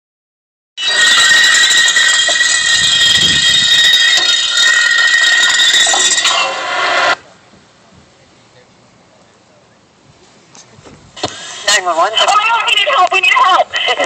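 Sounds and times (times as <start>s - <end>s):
distorted grating sound effect: 0.8s - 7.2s.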